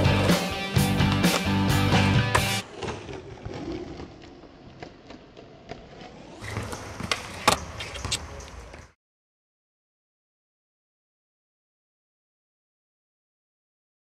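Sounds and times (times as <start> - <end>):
skateboard wheels rolling on concrete: 0.0 - 9.0.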